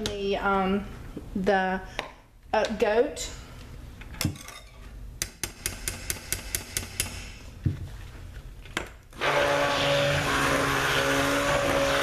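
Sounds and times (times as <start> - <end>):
stick blender running: 9.2 - 12.0.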